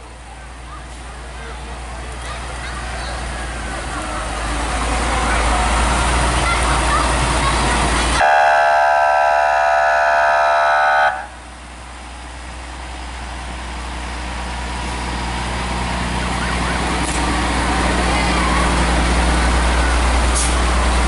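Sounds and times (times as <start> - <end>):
fire truck engines running: 0.0 - 21.0
fire truck air horn blast: 8.2 - 11.4.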